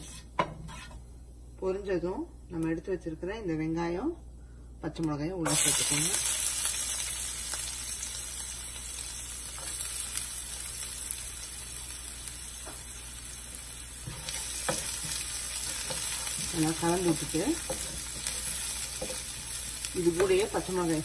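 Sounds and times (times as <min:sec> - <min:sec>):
wooden spatula stirring pan: 0:00.0 - 0:01.0, 0:14.0 - 0:20.6
onion sizzling in hot oil: 0:05.4 - 0:21.0.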